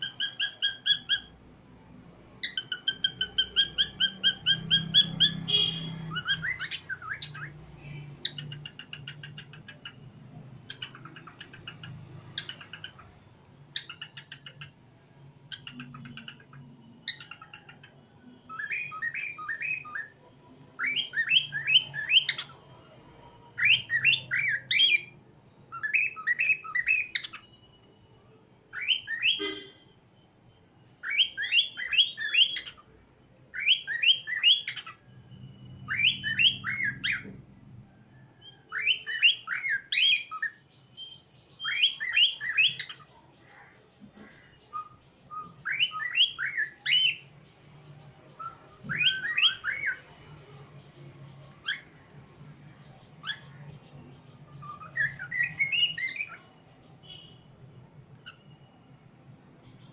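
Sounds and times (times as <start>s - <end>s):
bird raspy chatter: 2.4s - 14.8s
bird whistling rising notes: 33.5s - 37.4s, 44.7s - 47.3s, 48.3s - 50.3s.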